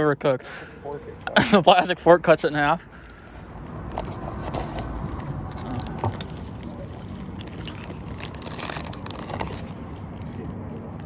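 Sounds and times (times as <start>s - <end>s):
plastic bag crinkling: 4.4s - 11.0s.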